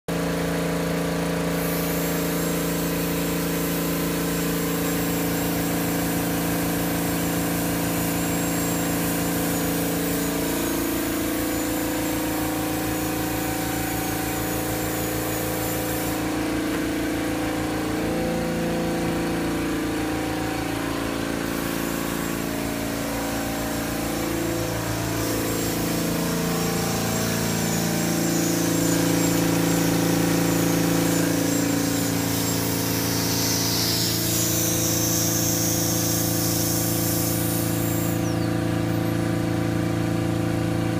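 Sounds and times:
air compressor humming: 0.1s - 40.9s
dental handpiece whine: 7.7s - 38.4s.

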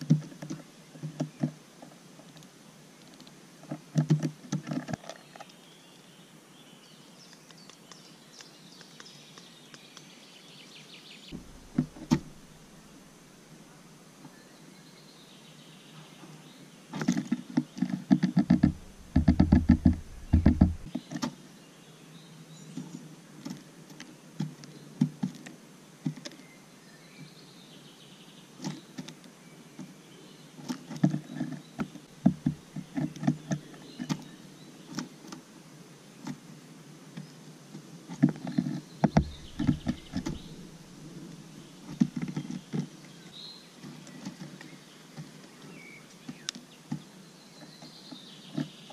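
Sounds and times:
bird pecking seeds in feeder: 11.4s - 13.2s, 17.0s - 21.2s, 38.2s - 42.9s.

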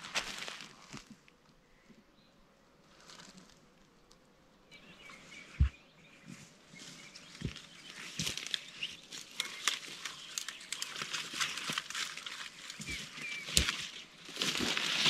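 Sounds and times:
footsteps through undergrowth: 0.0s - 1.3s, 2.8s - 3.6s, 4.8s - 15.0s
dry branches crackling and snapping: 7.1s - 15.0s.

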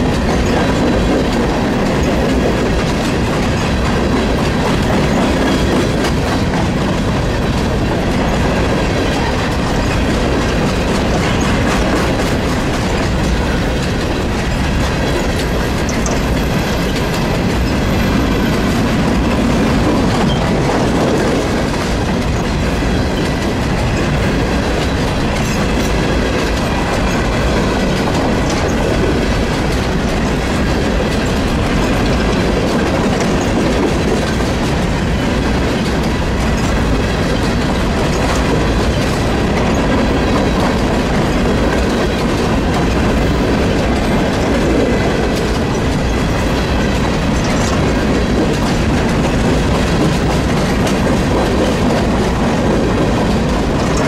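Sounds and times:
train wheels on rails: 0.0s - 54.0s.

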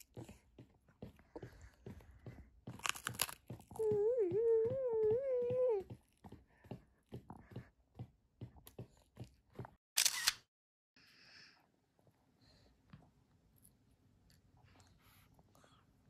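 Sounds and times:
child chewing rice cracker: 2.7s - 3.8s.

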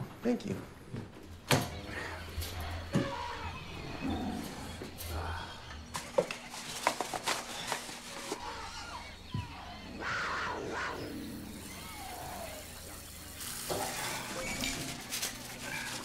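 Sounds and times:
plastic wrapper rustling: 5.9s - 8.6s, 13.4s - 16.0s.

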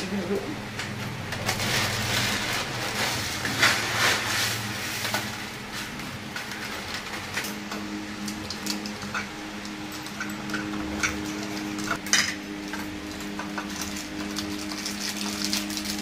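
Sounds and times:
plastic wrapper crinkling: 1.4s - 6.0s, 13.1s - 16.0s
dry noodles crushed in packet: 13.0s - 16.0s.

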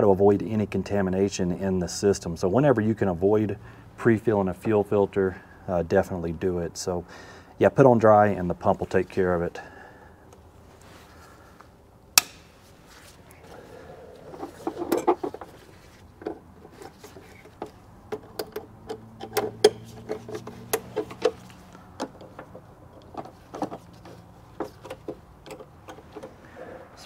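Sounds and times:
hand tools clicking on metal: 16.2s - 26.4s.

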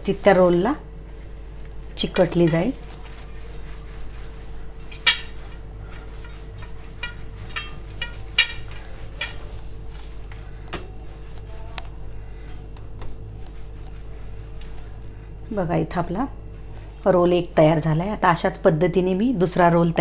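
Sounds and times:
steel plate clinking: 7.0s - 9.4s.

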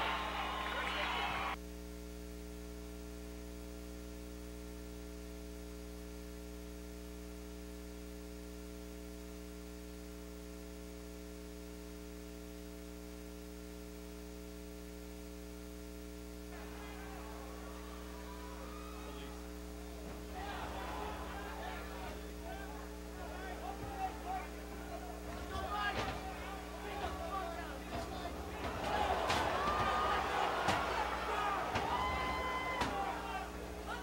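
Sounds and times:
electrical mains hum: 0.0s - 34.0s.

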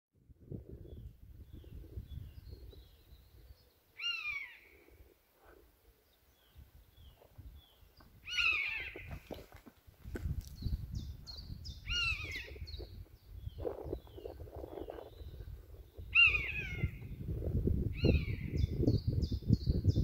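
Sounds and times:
bird of prey calling: 1.5s - 5.1s, 6.0s - 9.5s, 11.0s - 17.2s, 17.9s - 19.6s.

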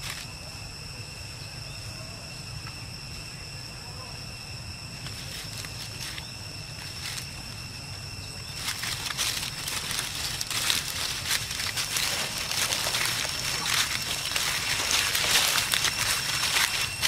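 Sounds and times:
footsteps on dry leaves: 5.0s - 17.0s.

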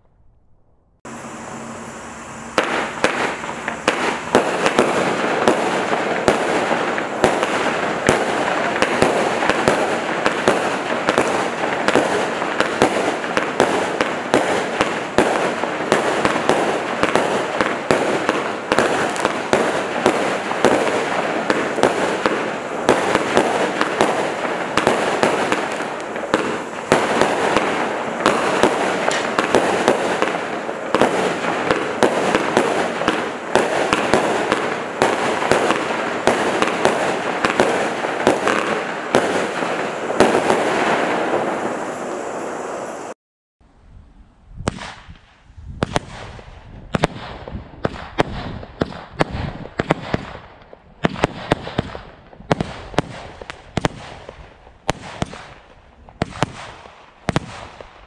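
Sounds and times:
firework crackling: 1.0s - 43.2s, 44.6s - 58.0s
firework shells bursting: 1.1s - 42.6s.

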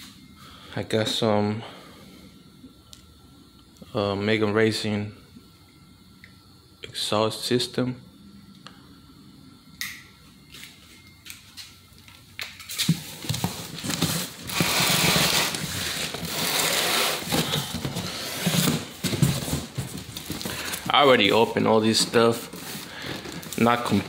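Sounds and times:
cardboard flaps scraping and rustling: 12.9s - 21.0s.

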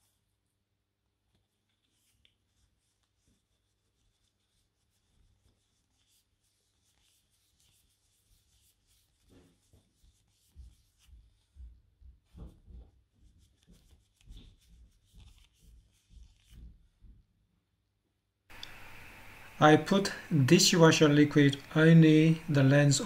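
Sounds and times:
cloth rubbing a lens: 0.0s - 17.4s.

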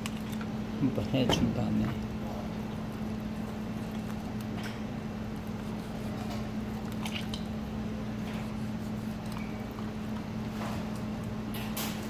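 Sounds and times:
wet squishing of flesh: 0.0s - 11.0s
steady low hum: 0.0s - 12.0s
knife cutting raw chicken: 5.6s - 6.4s.

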